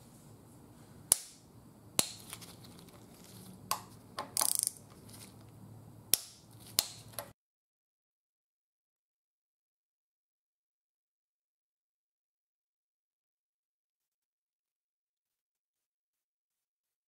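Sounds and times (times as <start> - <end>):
ratcheting clicks: 4.4 - 4.8
torque wrench clicking: 4.4 - 4.8.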